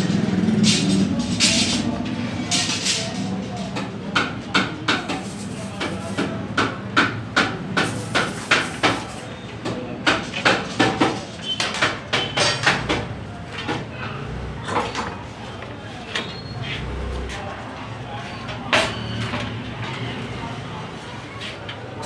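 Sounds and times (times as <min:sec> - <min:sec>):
hammer knocking on iron frame: 0:03.7 - 0:09.0.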